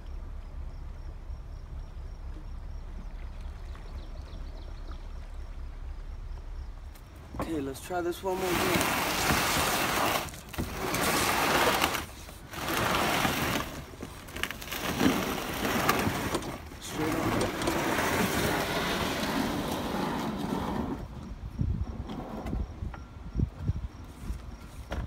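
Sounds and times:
canoe hull scraping over pebbles: 8.1s - 21.2s.

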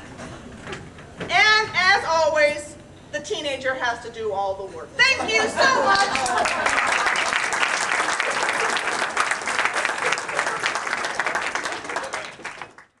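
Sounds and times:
crowd applause: 5.7s - 13.0s.

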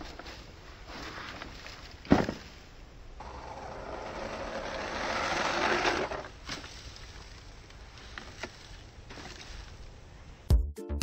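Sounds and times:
wheels churning sand: 3.2s - 10.2s.

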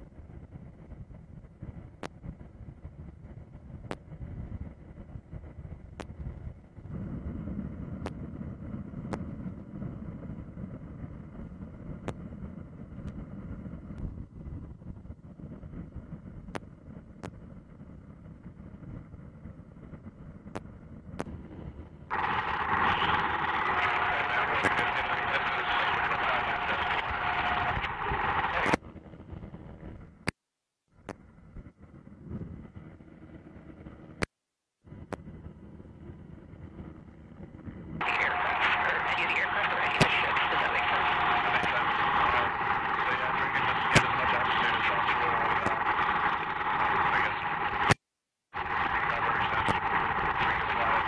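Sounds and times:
aircraft engine and wind rumble: 0.0s - 30.1s, 35.2s - 48.0s, 48.6s - 51.0s
faint steady whine: 0.0s - 30.3s, 31.0s - 51.0s
aircraft engine and airflow: 22.1s - 28.8s, 38.0s - 48.0s, 48.6s - 51.0s.

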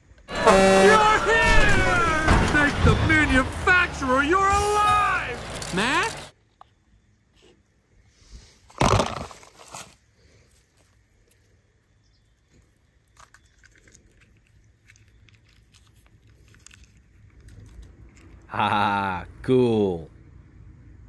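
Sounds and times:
sand crunching and crumbling: 0.9s - 6.3s
faint crackling and rustling: 12.2s - 18.5s.

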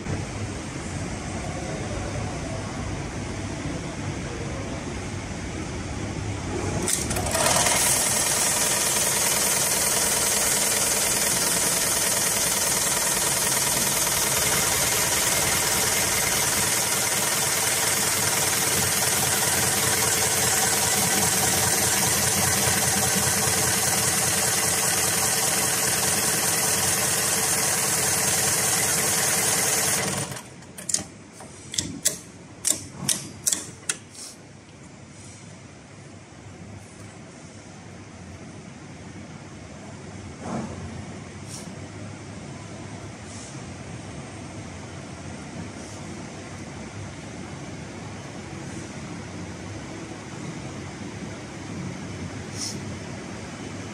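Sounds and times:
sewing machine stitching: 6.8s - 31.1s
sewing machine clicks: 6.9s - 31.1s, 31.7s - 34.0s.

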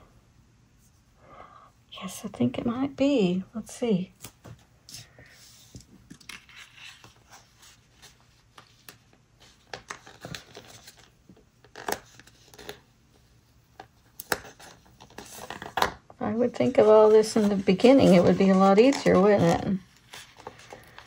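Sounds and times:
sticker paper rustling and peeling: 16.4s - 21.0s.

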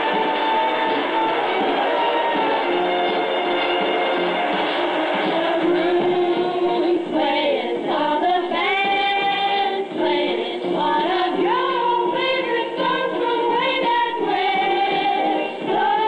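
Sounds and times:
band accompaniment: 0.0s - 7.2s
women singing together: 5.1s - 16.0s.

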